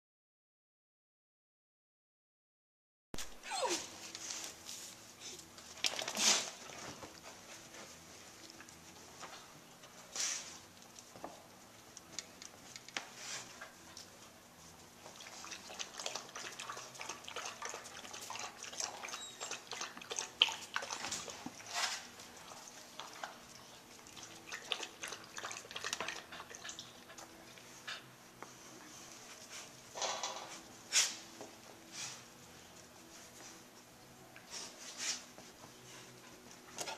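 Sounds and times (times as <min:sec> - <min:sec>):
puppies chewing and licking: 0:04.1 - 0:29.7
soft rustling on couch: 0:30.6 - 0:36.7.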